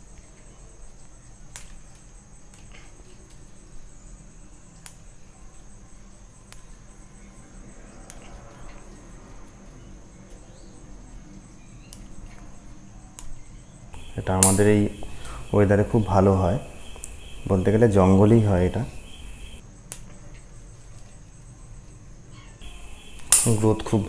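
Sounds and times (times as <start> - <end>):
pruning scissors snipping twigs: 14.0 - 15.5, 22.6 - 24.0
steady high-pitched drone: 14.0 - 19.6, 22.6 - 24.0.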